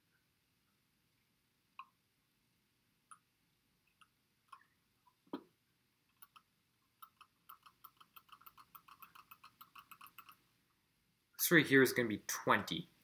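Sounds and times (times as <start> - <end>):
computer mouse clicks: 6.1 - 10.4.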